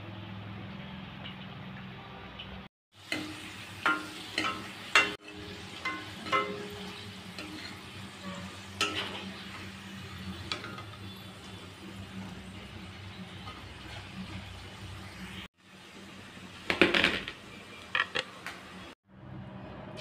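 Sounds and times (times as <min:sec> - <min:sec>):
fries sizzling in hot oil: 0:00.2 - 0:19.0
spoon clinking against pan: 0:03.1 - 0:07.8, 0:08.8 - 0:09.4.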